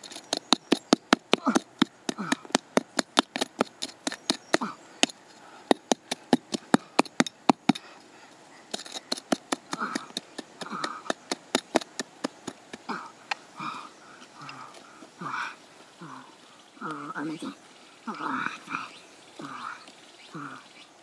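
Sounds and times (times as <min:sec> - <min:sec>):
hatchet chopping into clay and stones: 0:00.0 - 0:07.8, 0:08.7 - 0:12.8.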